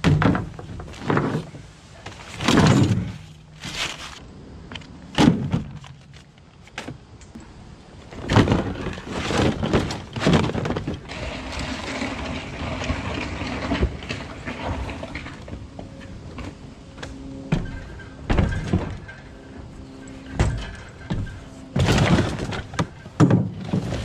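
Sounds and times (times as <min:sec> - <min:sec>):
trash can rolling rumble: 0:08.0 - 0:24.0.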